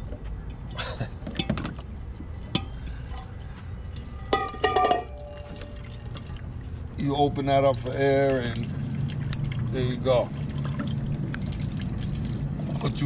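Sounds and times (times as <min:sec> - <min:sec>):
metal bowl clinking and ringing: 0:03.9 - 0:06.0.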